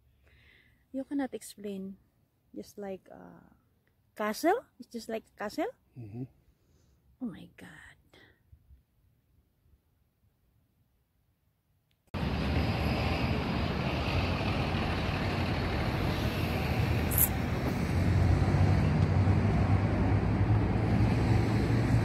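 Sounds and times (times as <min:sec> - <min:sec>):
car engine and road noise: 0:12.2 - 0:22.0.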